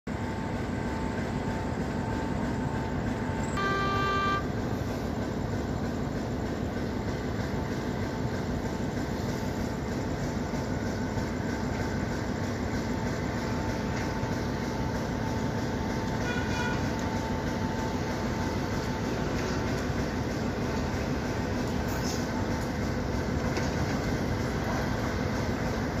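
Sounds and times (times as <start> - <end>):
steady background noise: 0.1 - 26.0
railcar horn toot: 3.5 - 4.6, 16.1 - 17.1.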